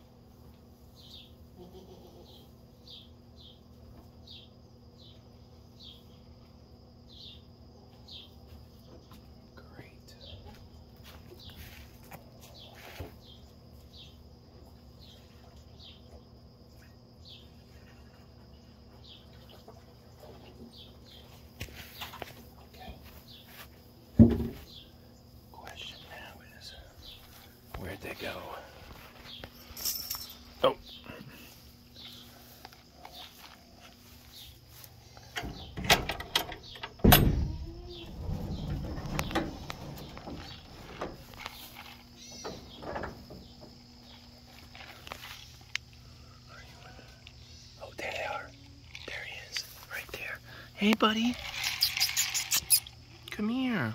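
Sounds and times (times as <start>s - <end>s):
steady low hum: 0.0s - 53.9s
door knocking and rattling: 35.4s - 41.2s
door banging: 35.4s - 41.3s
low scraping rumble: 37.4s - 41.4s
small bird chirping: 37.6s - 42.8s, 46.2s - 53.9s.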